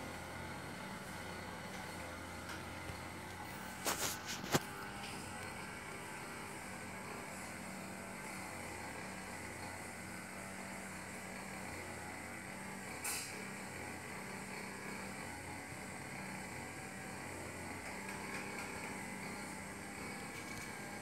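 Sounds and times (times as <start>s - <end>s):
short sharp hiss: 13.0s - 13.3s.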